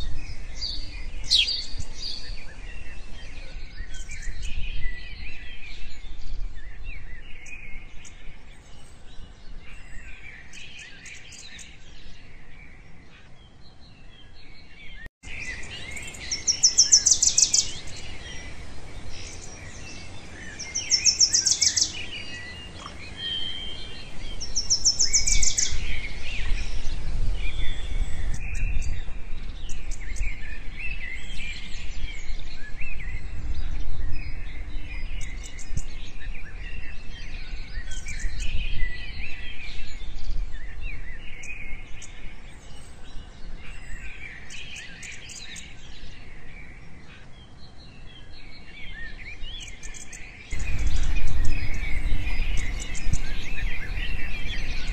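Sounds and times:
birds chirping and twittering: 0.0 - 54.9
low rumble: 50.6 - 54.9.

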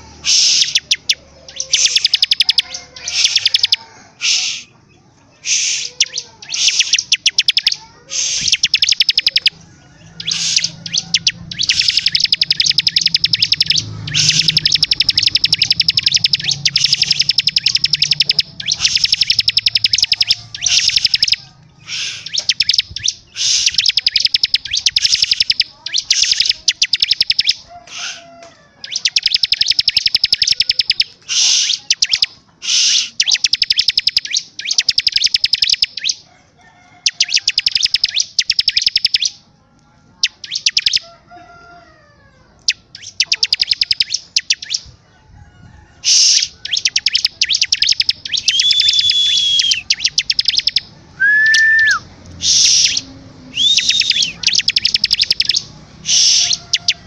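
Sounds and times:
bird rattling trills: 10.2 - 27.6, 53.7 - 57.0.

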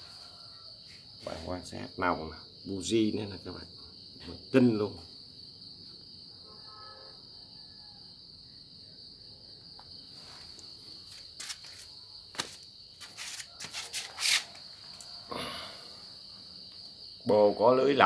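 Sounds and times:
insect trill: 0.0 - 18.0.

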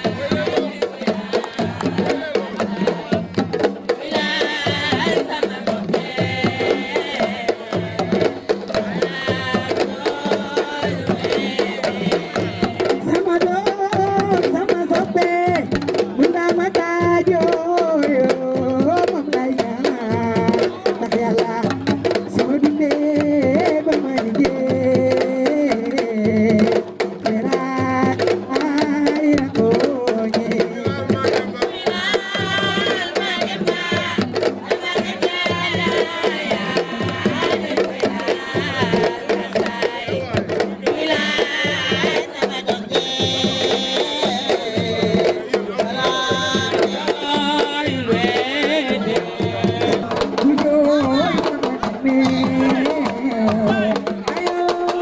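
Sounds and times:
drums steady beat: 0.0 - 55.0
children's song: 3.9 - 15.3, 27.5 - 55.0.

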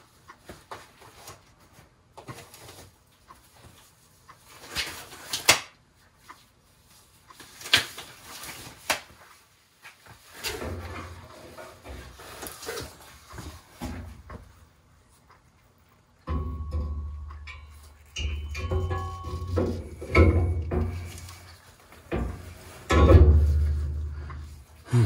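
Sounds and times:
gloves rustling and snapping: 7.3 - 10.3
metal crankshaft knocking and thudding: 16.3 - 21.5, 22.1 - 24.5.

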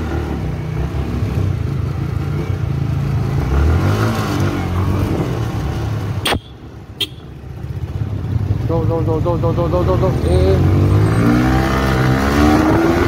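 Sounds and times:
motorcycle engine running: 5.0 - 11.2.

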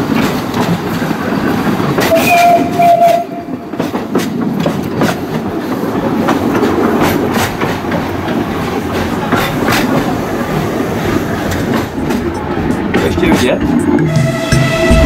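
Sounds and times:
steam locomotive clatter: 0.0 - 15.0
locomotive whistle: 2.0 - 3.6, 14.0 - 15.0.

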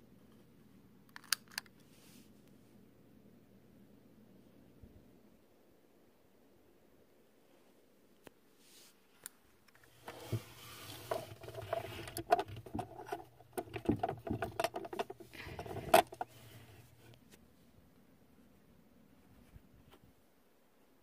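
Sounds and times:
rustling: 8.5 - 17.6.

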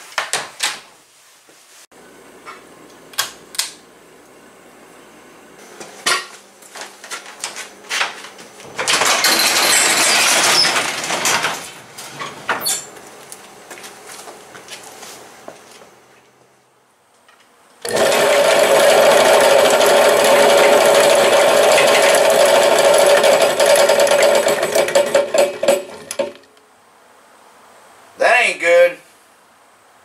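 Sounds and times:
garage door rattling open: 8.6 - 12.9, 17.9 - 26.4
clattering: 8.7 - 11.7.

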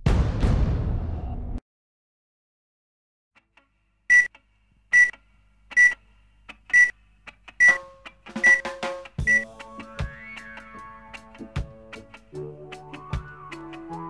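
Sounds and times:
short high countdown beeps: 5.0 - 5.2, 7.6 - 7.8, 8.4 - 9.5
tones: 7.6 - 7.8, 8.4 - 8.6, 9.3 - 9.5.

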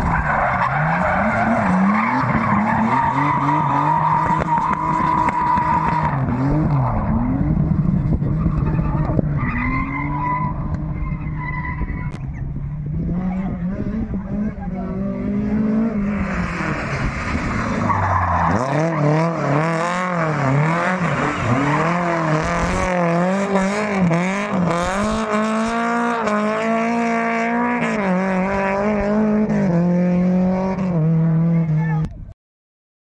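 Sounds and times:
tyres squealing and skidding: 0.0 - 7.4, 8.2 - 12.4, 16.0 - 25.4
car engine revving: 0.0 - 31.8.

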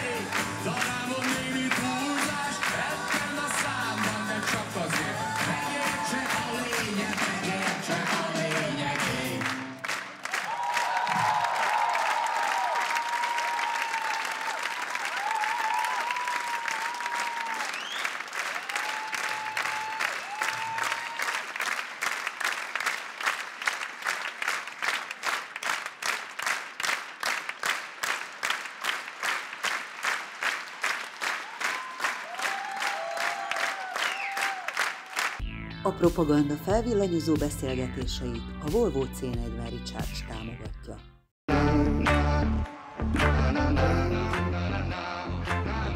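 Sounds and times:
audience applauding: 0.0 - 35.4
rhythmic clapping in unison: 0.0 - 35.4, 42.0 - 44.7
whistles: 17.6 - 18.2, 33.6 - 34.6.

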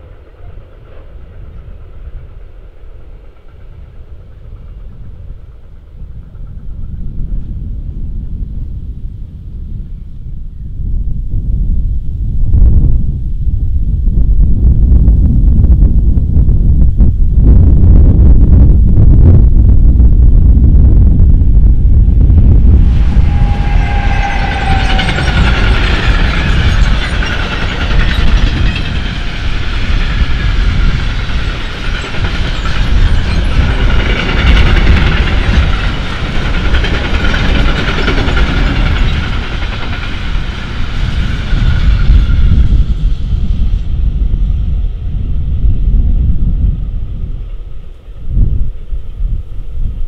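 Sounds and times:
train wheels rumbling on rails: 0.0 - 50.0
shrill wheel squeal: 22.8 - 34.7, 40.1 - 43.0.

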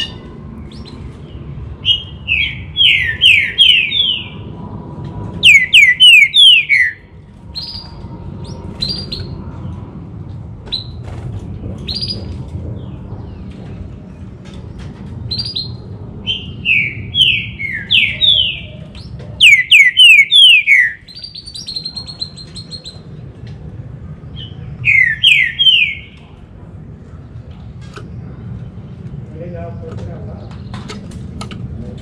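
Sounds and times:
bird singing whistled notes: 1.8 - 4.4, 5.4 - 7.0, 15.3 - 18.8, 19.4 - 23.0, 24.4 - 26.2.

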